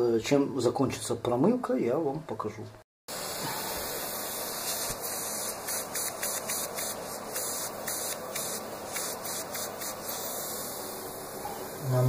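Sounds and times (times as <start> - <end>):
steady hissing noise: 3.1 - 12.0.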